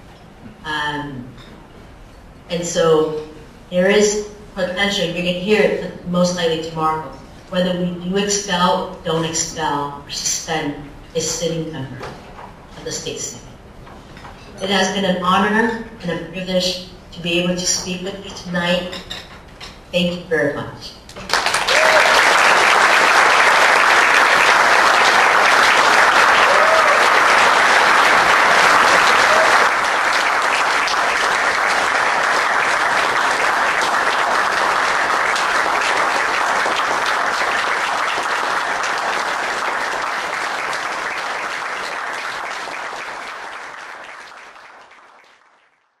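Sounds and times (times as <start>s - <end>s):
audience applauding: 21.2s - 46.0s.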